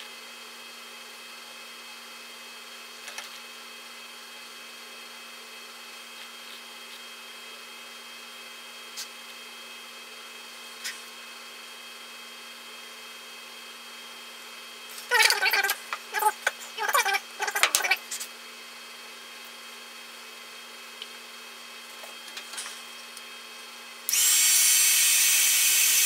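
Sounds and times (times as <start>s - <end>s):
constant hum: 14.9s - 18.4s.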